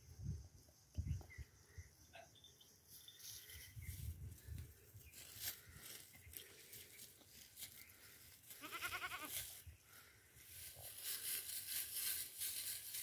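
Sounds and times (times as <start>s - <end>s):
goat bleating: 8.5s - 9.4s.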